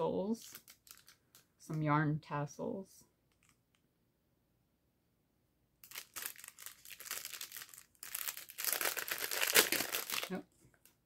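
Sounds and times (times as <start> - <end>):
cellophane bag crinkling: 0.4 - 1.4, 5.8 - 11.0.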